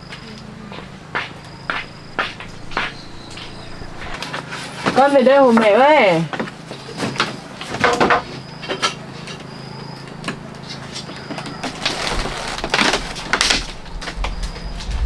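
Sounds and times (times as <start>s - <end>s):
low rumble: 0.6s - 4.5s, 12.0s - 15.0s.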